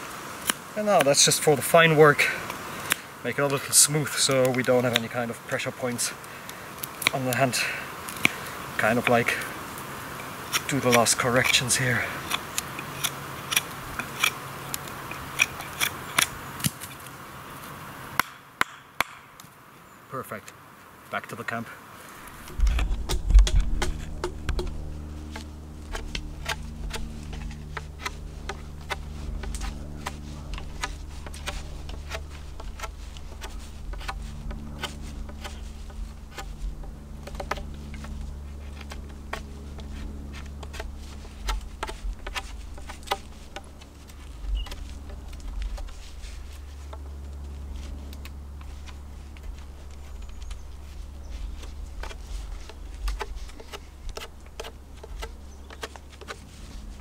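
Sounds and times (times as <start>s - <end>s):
knife carving wood: 2.4s - 5.2s, 6.8s - 9.2s, 10.1s - 17.0s, 22.2s - 57.0s
insect buzzing: 21.8s - 57.0s.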